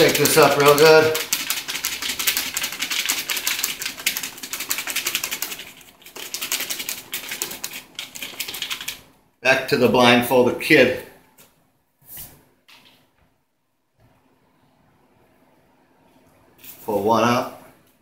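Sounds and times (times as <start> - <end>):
paper slips rattling in plastic container: 0.0 - 9.1.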